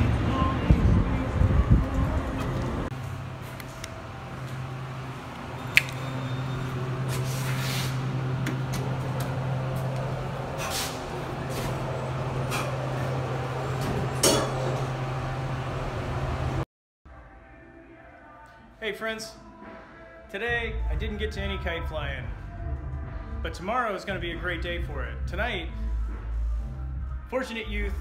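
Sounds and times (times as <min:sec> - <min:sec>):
elevator humming: 0:00.0 - 0:07.3, 0:08.0 - 0:16.6
sharp click: 0:05.7 - 0:06.1.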